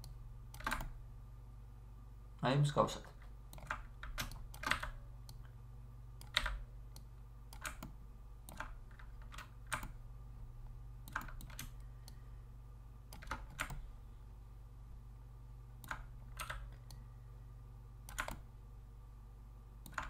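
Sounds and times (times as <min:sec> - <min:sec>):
steady low hum: 0:00.0 - 0:20.0
mouse and keyboard clicks: 0:11.1 - 0:12.2.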